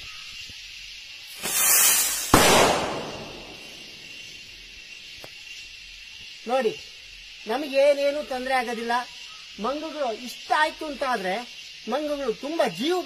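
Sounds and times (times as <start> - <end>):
firework rocket hissing: 1.2 - 4.4
firework bang: 1.4 - 3.9.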